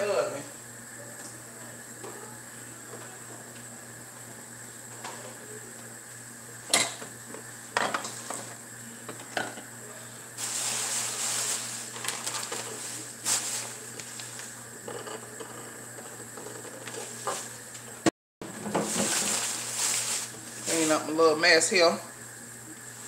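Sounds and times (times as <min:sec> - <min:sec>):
pans and utensils clanking: 0:06.7 - 0:07.1
food sizzling: 0:10.3 - 0:18.0, 0:18.6 - 0:23.0.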